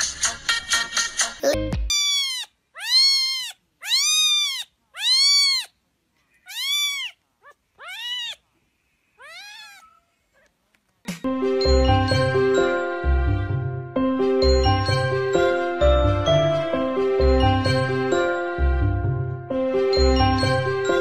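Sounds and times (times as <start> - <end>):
cat chirp: 1.9 - 5.8, 6.4 - 8.4, 9.2 - 10.6
cat meowing: 1.9 - 8.4, 9.2 - 10.6.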